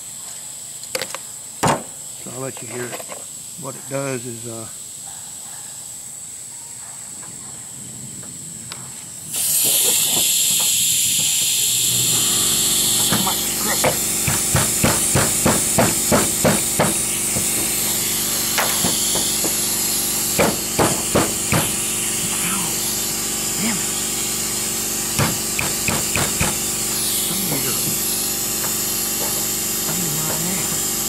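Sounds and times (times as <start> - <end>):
air hissing: 9.1 - 31.0.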